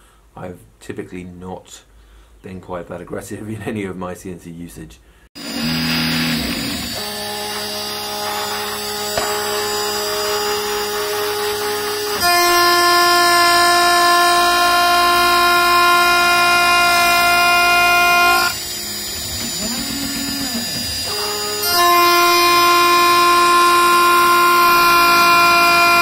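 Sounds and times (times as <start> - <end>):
cnc router spindle whine: 5.4 - 26.0.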